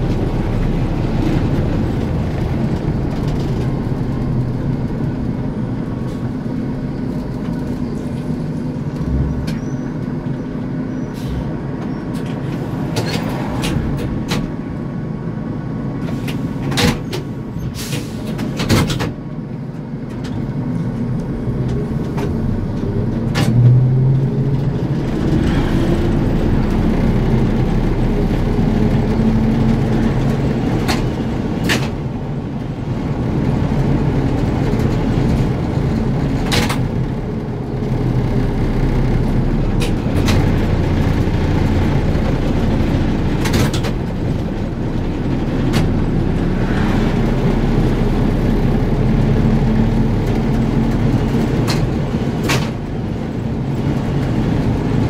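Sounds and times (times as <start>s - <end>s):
trolleybus rumble: 0.0s - 55.0s.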